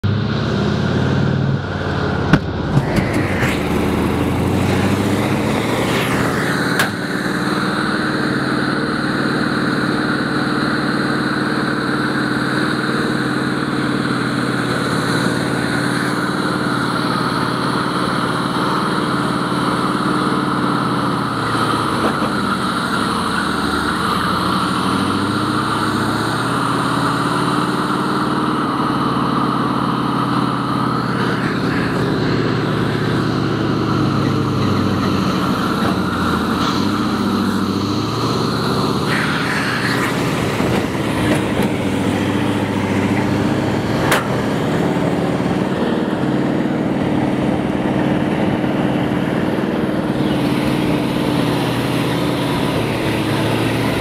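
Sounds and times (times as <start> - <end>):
tank engine running: 0.0 - 54.0
tracks rolling: 1.8 - 17.4, 31.1 - 54.0.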